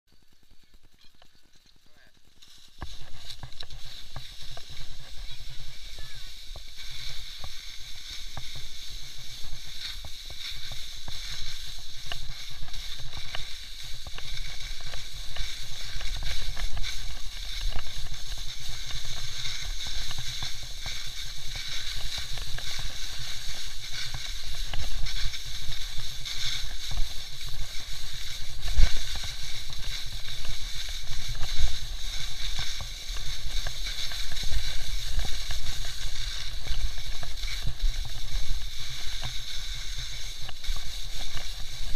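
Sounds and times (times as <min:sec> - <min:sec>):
skis scraping over snow: 0:00.1 - 0:41.9
wind on microphone: 0:02.8 - 0:41.9.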